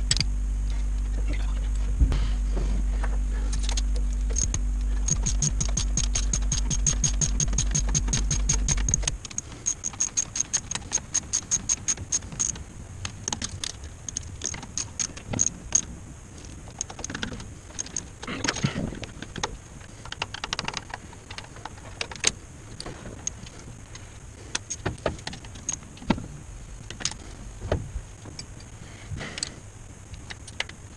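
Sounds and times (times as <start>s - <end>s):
low mechanical hum: 0.0s - 30.9s
ratchet wrench clicking: 3.7s - 12.6s.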